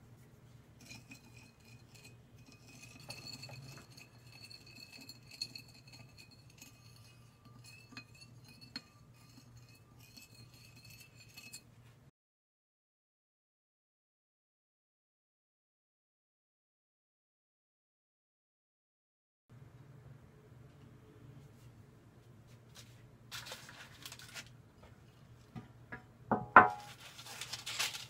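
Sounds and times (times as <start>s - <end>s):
dishware clinking on ceramic plate: 25.9s - 27.0s.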